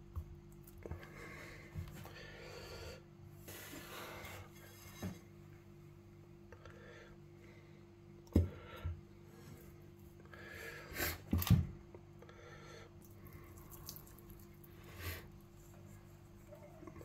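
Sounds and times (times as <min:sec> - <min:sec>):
faint steady hum: 0:00.0 - 0:17.0
soft rubbing of meat: 0:13.4 - 0:17.0.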